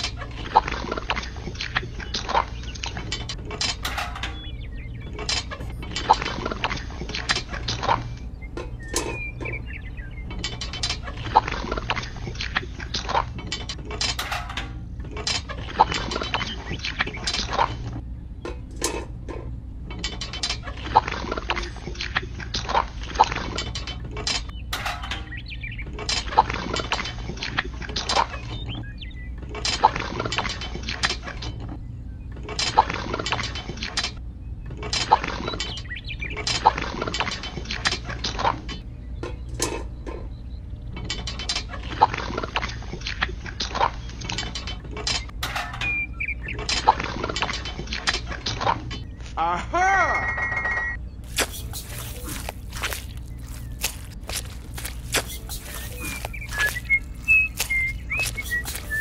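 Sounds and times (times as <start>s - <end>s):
mechanical parts clicking and clattering: 12.4s - 15.6s.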